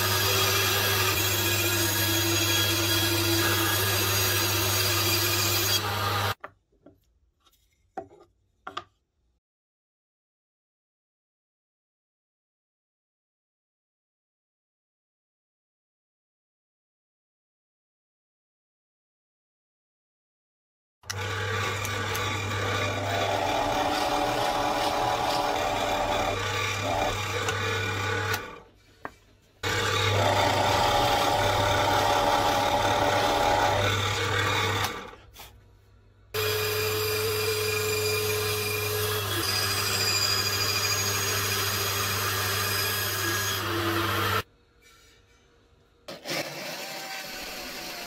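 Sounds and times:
band saw cutting wood: 0.0s - 6.4s, 21.1s - 28.7s, 29.6s - 35.4s, 36.4s - 44.4s, 46.1s - 48.0s
drill press running: 21.1s - 28.7s, 29.6s - 35.2s.

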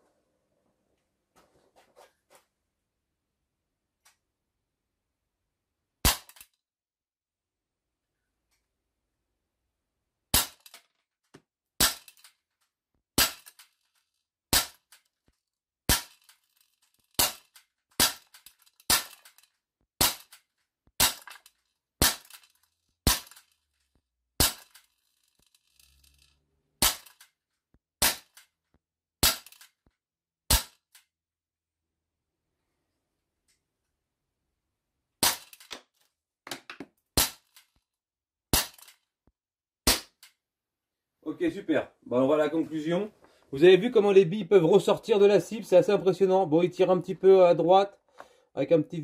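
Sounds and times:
air pistol shots: 6.0s - 6.5s, 10.3s - 10.8s, 11.8s - 12.2s, 14.5s - 14.9s, 17.2s - 19.3s, 20.0s - 20.4s, 21.0s - 21.3s, 24.4s - 24.8s, 26.8s - 27.2s, 28.0s - 28.4s, 29.2s - 29.6s, 30.5s - 30.8s, 35.2s - 35.6s, 38.5s - 39.0s, 39.9s - 40.3s.

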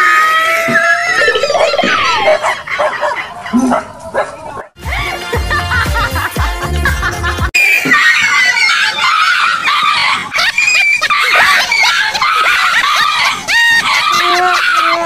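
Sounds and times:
dog yelping and barking: 1.1s - 4.7s, 7.9s - 15.0s
music: 4.8s - 7.5s.

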